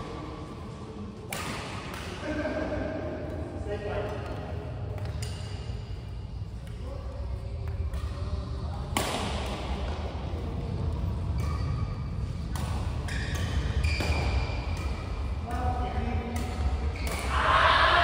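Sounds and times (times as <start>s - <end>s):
steady low hum: 0.0s - 17.2s
rackets striking shuttlecock: 1.3s - 2.2s, 8.8s - 10.0s, 11.2s - 17.3s.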